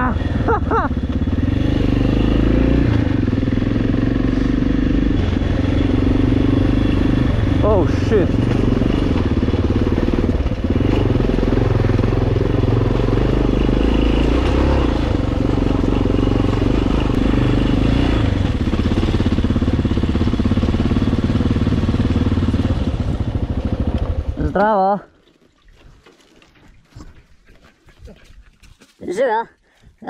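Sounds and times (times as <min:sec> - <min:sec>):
motorcycle engine running: 0:00.0 - 0:25.0.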